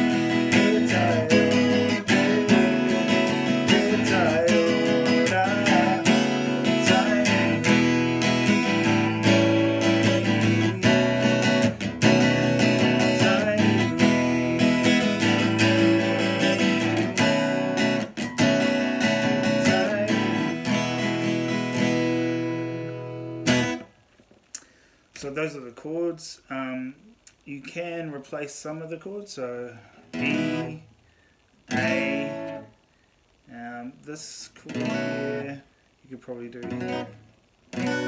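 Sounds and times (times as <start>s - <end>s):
acoustic guitar strumming: 0.0s - 24.0s, 30.1s - 30.9s, 31.7s - 32.8s, 34.6s - 35.6s, 36.5s - 38.0s.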